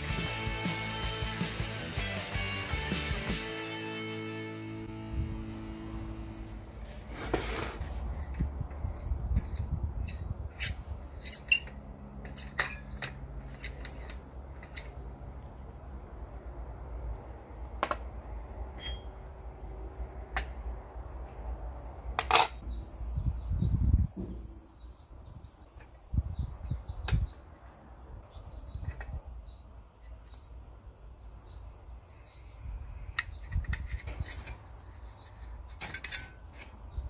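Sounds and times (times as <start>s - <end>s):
birds chirping: 22.5s - 33.7s.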